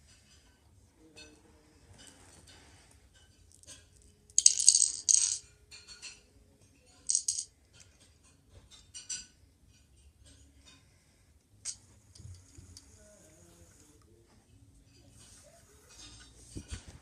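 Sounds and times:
plastic pieces rattling burst: 4.4s - 5.4s, 7.1s - 7.4s
plastic toy pieces clicking: 4.4s - 5.4s, 7.1s - 7.5s.

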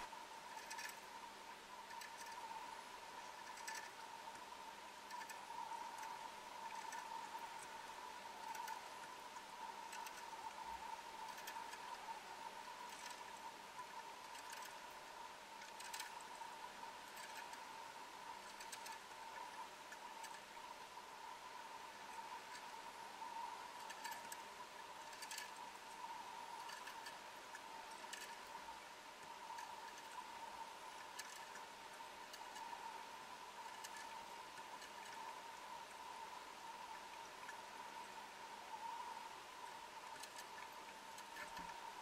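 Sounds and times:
faint steady hiss: 0.0s - 42.0s
light ticks: 0.0s - 42.0s
soft clicks: 1.8s - 15.0s.

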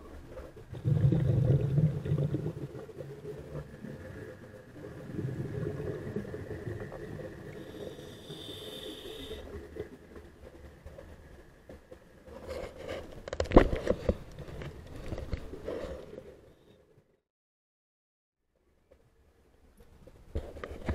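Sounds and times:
underwater breath bubbling: 0.7s - 3.0s, 3.8s - 9.6s.

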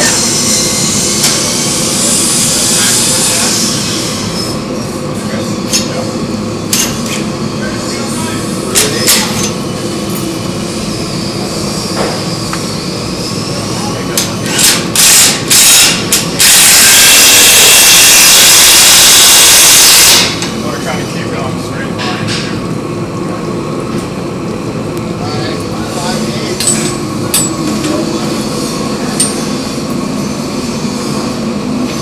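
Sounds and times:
steady workshop hum: 0.0s - 32.0s
loud hissing: 15.2s - 20.4s.

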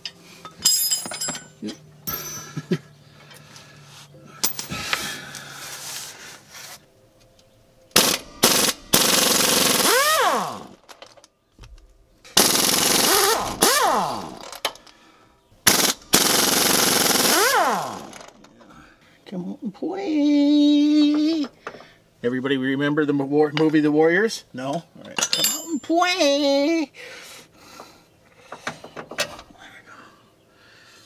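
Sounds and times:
tool handling clinks: 0.0s - 2.6s, 4.4s - 4.8s, 25.1s - 26.0s
pneumatic impact wrench hammering: 8.0s - 10.8s, 12.3s - 14.8s, 15.7s - 18.3s.

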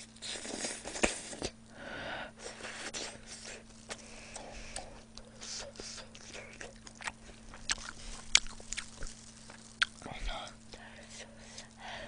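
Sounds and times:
faint steady hum: 0.0s - 12.0s
chewing and mouth smacking: 2.6s - 10.9s.

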